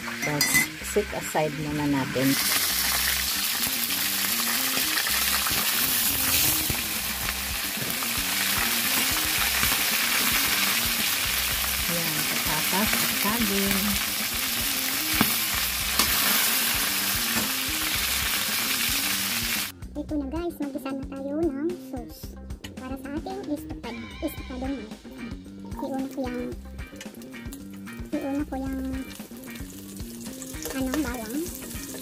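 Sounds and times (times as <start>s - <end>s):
food deep-frying in oil: 0.0s - 19.7s, 27.1s - 32.0s.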